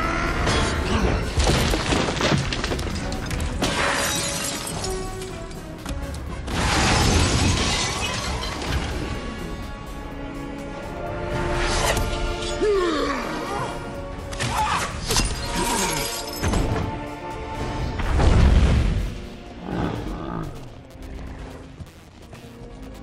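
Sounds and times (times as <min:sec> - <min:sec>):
film score music: 0:00.0 - 0:23.0
glass shattering: 0:01.4 - 0:05.4, 0:06.6 - 0:08.9, 0:15.0 - 0:16.7.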